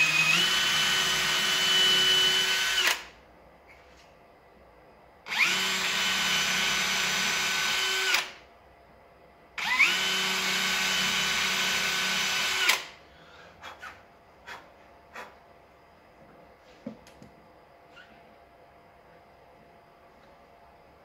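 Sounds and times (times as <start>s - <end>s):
cordless drill boring: 0.0s - 3.1s, 5.3s - 8.4s, 9.6s - 12.9s.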